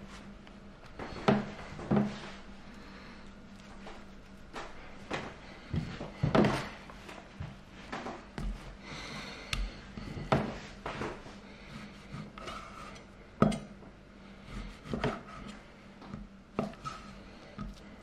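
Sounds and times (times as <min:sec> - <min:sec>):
faint steady hum: 0:00.0 - 0:18.0
rubbing on chopping board: 0:11.6 - 0:13.0.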